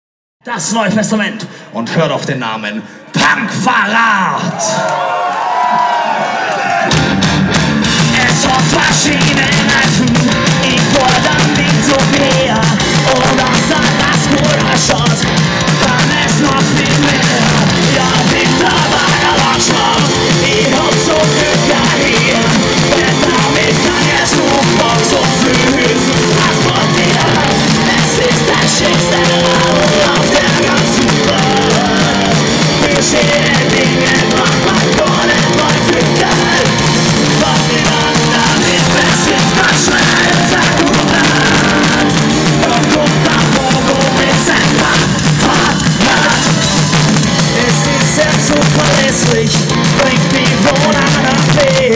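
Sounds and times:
distorted electric guitars: 0:04.8 - 0:51.9
bass guitar: 0:05.5 - 0:51.9
drum kit fast beat: 0:06.9 - 0:51.9
person singing: 0:07.9 - 0:51.9.

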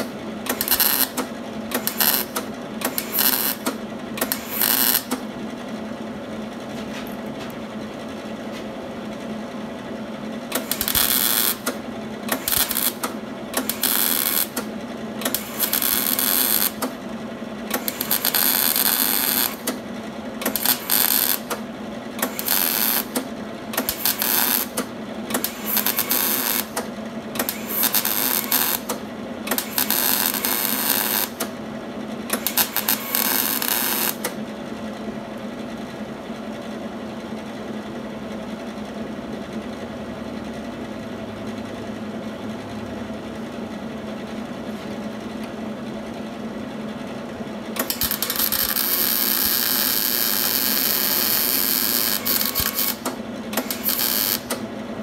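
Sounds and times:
welder arc crackling: 0:00.0 - 0:05.2, 0:10.6 - 0:14.6, 0:15.2 - 0:16.9, 0:17.7 - 0:19.8, 0:20.4 - 0:21.6, 0:22.2 - 0:23.2, 0:23.8 - 0:24.8, 0:25.4 - 0:26.8, 0:27.4 - 0:31.5, 0:32.4 - 0:34.3, 0:47.8 - 0:54.6.

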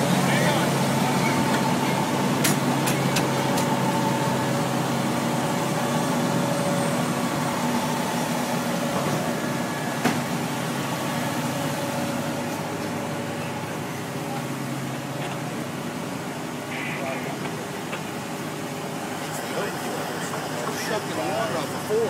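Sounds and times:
fire engine droning: 0:00.0 - 0:22.0.

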